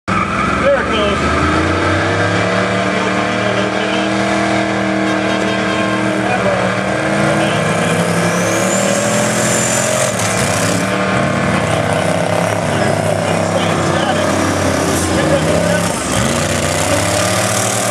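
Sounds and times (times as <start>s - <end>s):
engine revving: 0.1s - 17.9s
tyres spinning: 6.1s - 17.9s.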